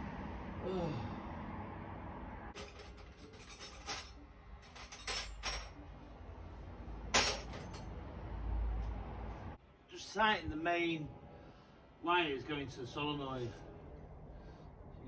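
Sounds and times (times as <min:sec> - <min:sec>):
hand tools clinking against metal: 0:02.6 - 0:05.8, 0:07.1 - 0:08.0.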